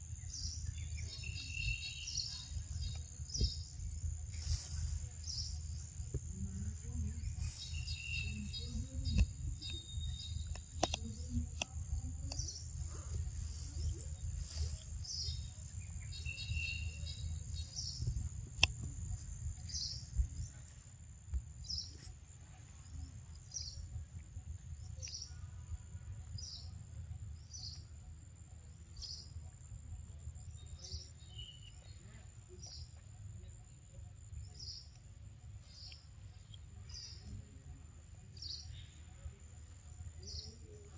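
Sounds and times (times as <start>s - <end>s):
bird chirping: 0.0s - 20.8s, 21.6s - 40.9s
insect drone: 0.0s - 40.9s
sharp clicks: 8.4s - 12.6s, 18.5s - 18.9s.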